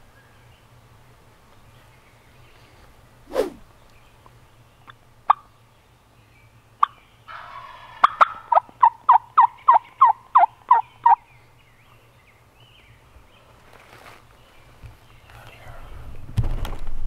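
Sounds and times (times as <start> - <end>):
turkey yelping: 6.8 - 11.2.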